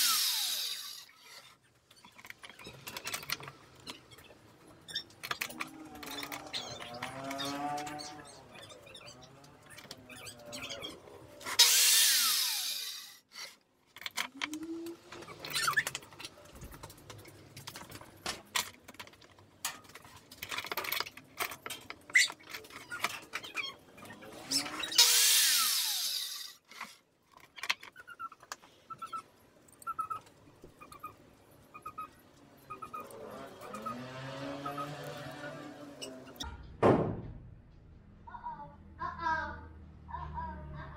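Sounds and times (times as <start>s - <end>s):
circular saw cutting: 0.0s - 1.2s, 11.4s - 13.5s, 24.4s - 26.7s.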